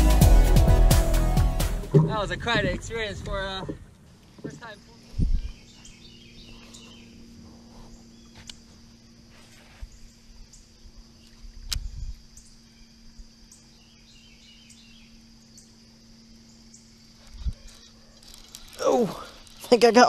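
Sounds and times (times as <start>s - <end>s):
low handling thumps: 0.0s - 5.8s
birds chirping: 1.8s - 20.0s
high insect drone: 1.8s - 20.0s
sharp click: 11.6s - 11.9s.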